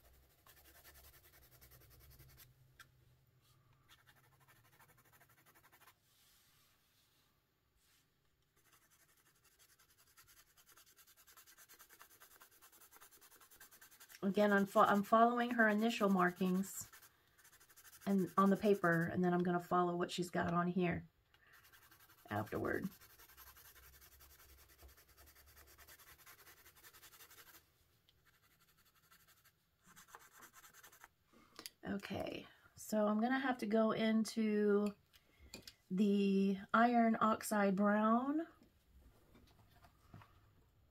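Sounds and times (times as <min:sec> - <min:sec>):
colored pencil shading on paper: 0:00.0 - 0:02.4, 0:03.9 - 0:06.0, 0:08.6 - 0:19.5, 0:21.5 - 0:27.6, 0:28.2 - 0:31.1.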